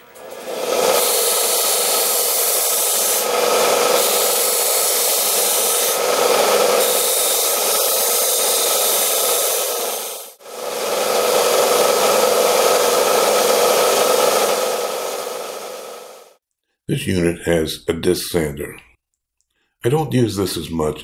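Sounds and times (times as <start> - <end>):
belt sander grinding metal: 0.0 - 16.3.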